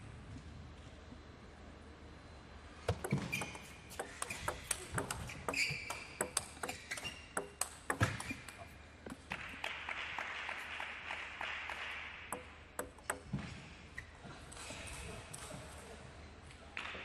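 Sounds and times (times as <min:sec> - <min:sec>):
table tennis ball clicking: 0:02.9 - 0:09.4, 0:12.3 - 0:13.3.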